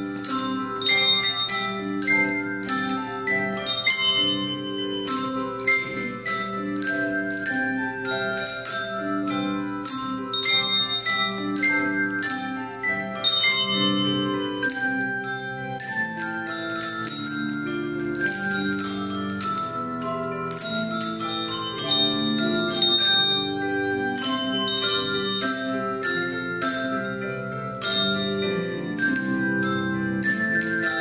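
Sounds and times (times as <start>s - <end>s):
handbell choir playing a tune: 0.0s - 31.0s.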